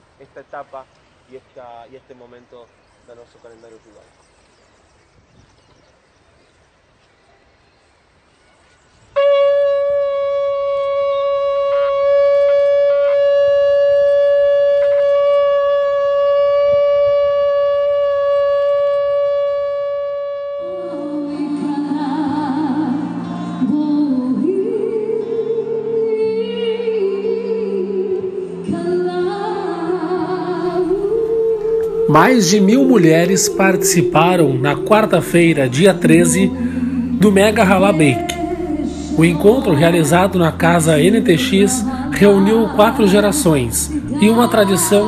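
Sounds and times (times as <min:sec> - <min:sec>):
shofar blast: 0:09.2 - 0:21.0, 0:30.7 - 0:45.0
background music with voice: 0:21.3 - 0:45.0.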